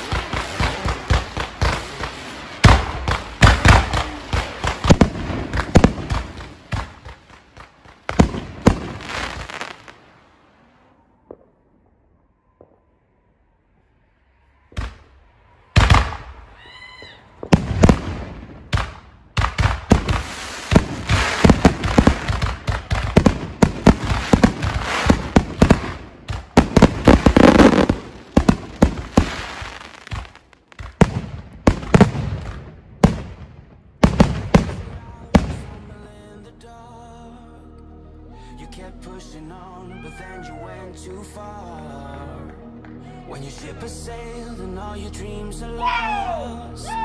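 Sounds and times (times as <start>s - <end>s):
fireworks bangs and crackling: 0.0s - 13.0s, 14.7s - 36.1s.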